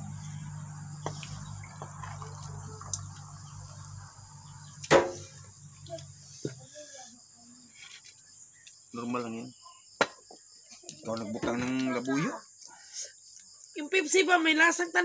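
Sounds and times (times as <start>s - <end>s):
low hum: 0.0s - 6.3s
crickets chirring: 0.0s - 15.0s.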